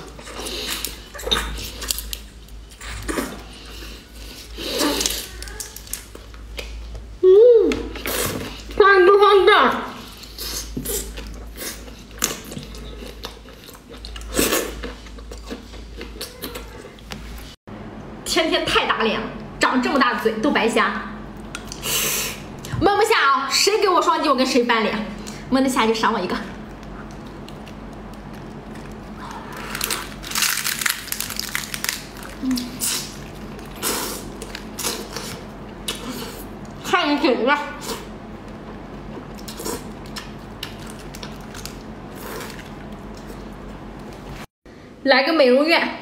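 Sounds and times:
chewing: 0:10.1 - 0:17.1, 0:26.6 - 0:36.8, 0:37.8 - 0:44.4
wet crunching and slurping: 0:26.8 - 0:36.8.

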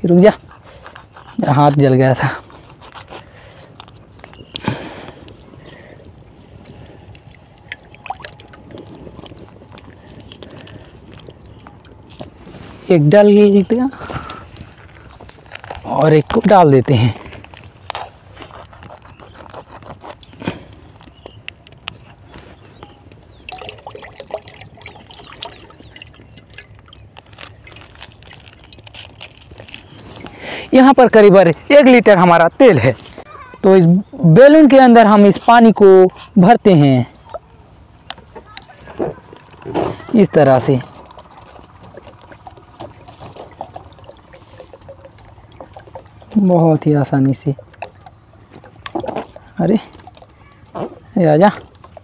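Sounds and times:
crackling burning sticks: 0:00.8 - 0:32.0
plastic pouch crinkling: 0:14.6 - 0:16.2, 0:26.4 - 0:30.4
oil trickling into pan: 0:23.4 - 0:28.9, 0:40.9 - 0:46.4.

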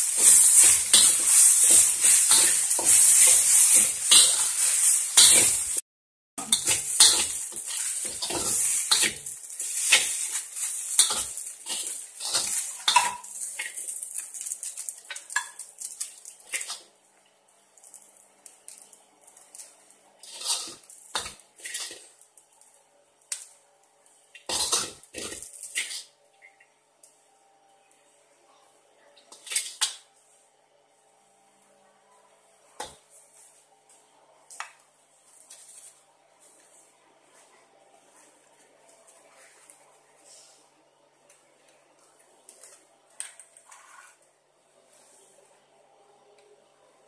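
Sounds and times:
frying sizzle: 0:00.0 - 0:05.8, 0:06.4 - 0:17.0, 0:17.8 - 0:26.2
utensil scraping a wok: 0:00.0 - 0:05.8, 0:06.4 - 0:15.6, 0:20.2 - 0:22.1, 0:24.5 - 0:26.1, 0:43.6 - 0:44.2.

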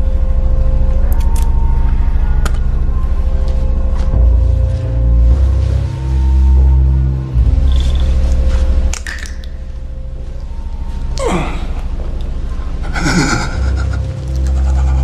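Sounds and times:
low pulsing drone music: 0:00.0 - 0:15.0
man groaning: 0:11.2 - 0:11.8.

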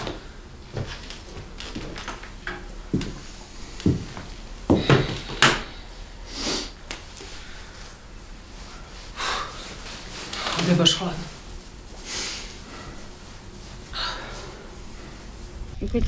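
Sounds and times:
knocks and thumps of handling things: 0:03.8 - 0:05.7.

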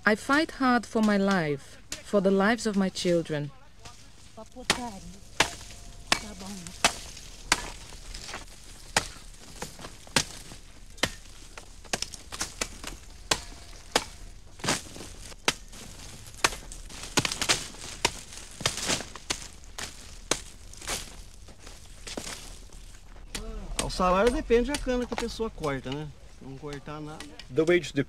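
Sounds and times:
machetes chopping sugar cane: 0:03.8 - 0:26.0.

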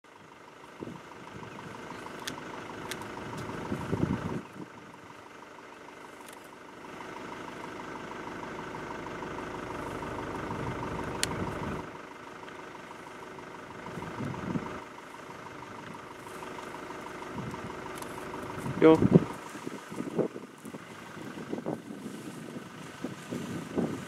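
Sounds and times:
vehicle engine idling: 0:00.0 - 0:24.0
sharp clicks: 0:02.0 - 0:03.6, 0:11.1 - 0:11.7.

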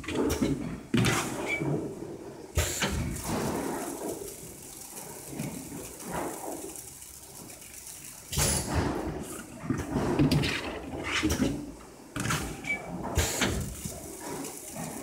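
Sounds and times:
plastic bucket knocks and scrapes: 0:08.4 - 0:12.4.

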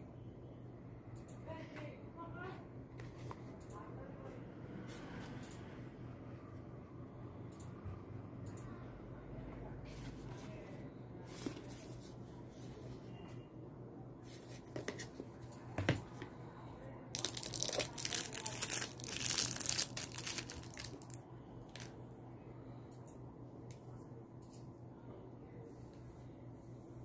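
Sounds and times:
low steady hum: 0:00.0 - 0:27.0
plastic bag crinkling: 0:17.2 - 0:21.9.

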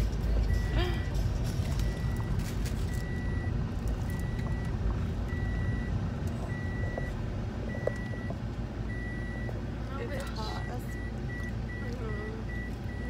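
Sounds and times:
car rumble: 0:00.0 - 0:13.0.

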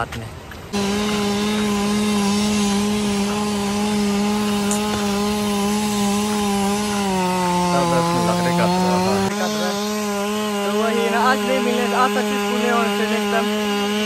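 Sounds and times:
chainsaw running at high revs: 0:00.7 - 0:14.0.

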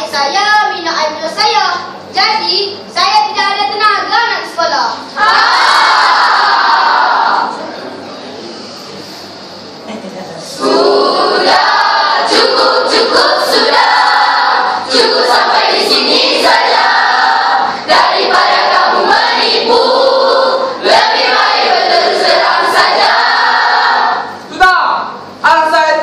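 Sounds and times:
choir singing in unison: 0:05.2 - 0:07.5, 0:10.6 - 0:24.3.

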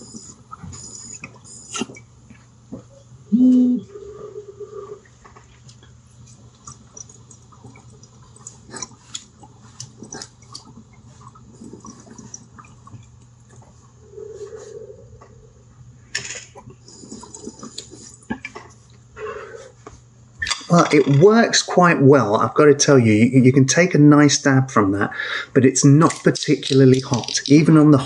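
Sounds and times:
water bubbling and gurgling: 0:04.0 - 0:14.6, 0:25.6 - 0:28.0.

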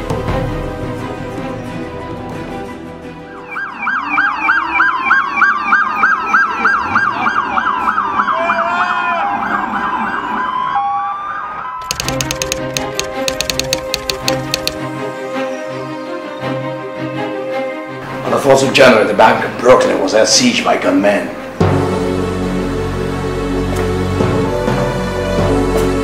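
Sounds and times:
police sirens: 0:03.4 - 0:11.8
typewriter-like clicks: 0:11.8 - 0:14.9.

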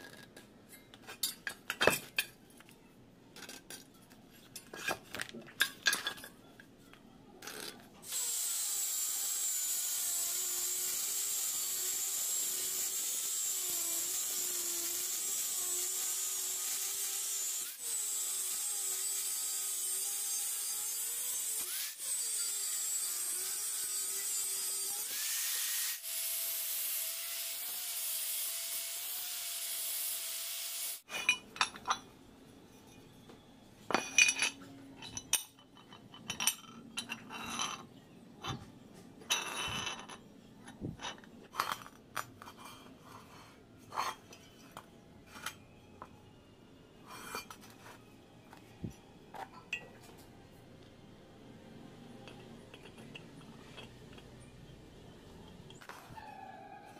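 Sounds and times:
metal pieces clinking and knocking: 0:03.4 - 0:06.4, 0:31.1 - 0:32.1, 0:33.9 - 0:38.6, 0:39.3 - 0:42.8
angle grinder grinding steel: 0:08.0 - 0:31.0.

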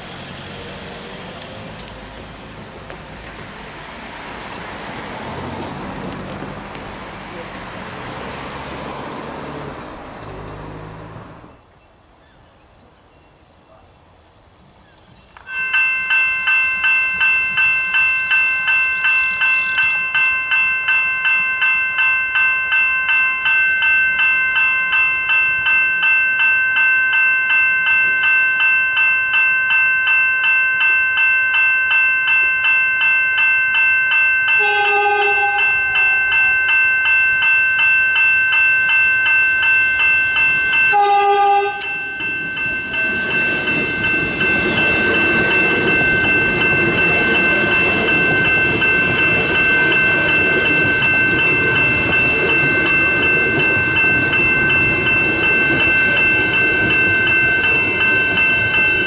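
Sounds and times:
level crossing bell ringing: 0:15.5 - 0:59.0.

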